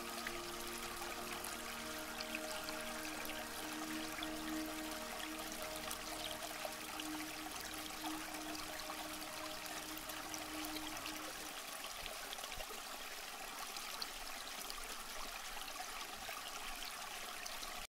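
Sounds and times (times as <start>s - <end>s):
low steady tone: 0.0s - 12.7s
water trickling: 0.0s - 17.9s.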